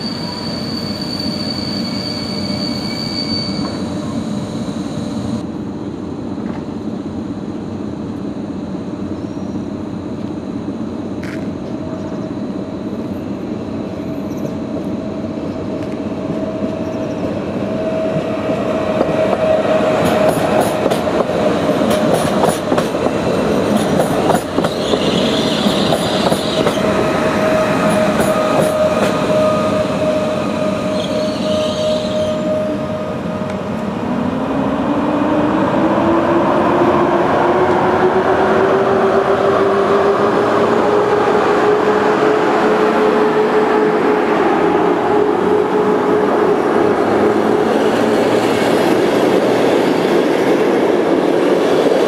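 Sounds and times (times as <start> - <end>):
electric train whine: 0.0 - 52.0
locomotive whine rising in pitch: 24.8 - 50.0.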